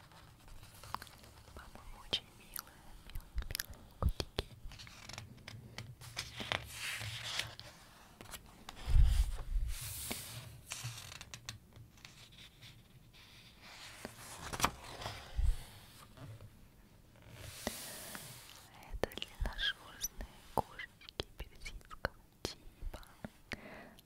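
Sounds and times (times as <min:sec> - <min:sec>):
paper pages rustling: 0:00.0 - 0:01.6, 0:04.7 - 0:11.3, 0:13.7 - 0:16.2
soft thump of page: 0:14.3 - 0:15.6.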